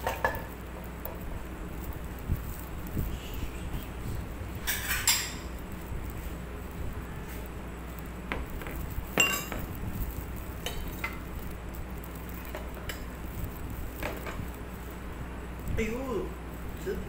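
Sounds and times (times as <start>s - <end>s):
glass bowls clinking on table: 9.2s - 9.6s.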